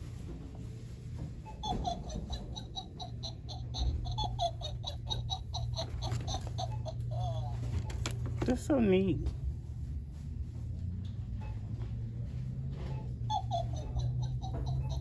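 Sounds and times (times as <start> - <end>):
steady low hum: 0.0 - 15.0
person laughing: 1.6 - 7.6, 13.3 - 15.0.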